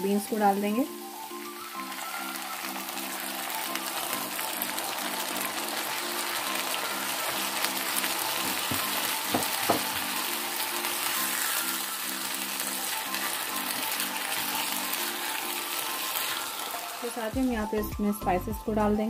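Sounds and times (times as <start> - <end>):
food sizzling in a frying pan: 0.0 - 18.8
spatula knocking against pan: 8.7 - 10.0.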